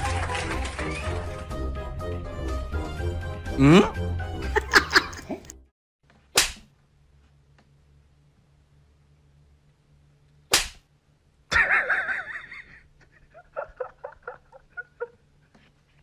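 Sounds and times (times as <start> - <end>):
sharp slap: 6.3 - 6.7, 10.5 - 10.9.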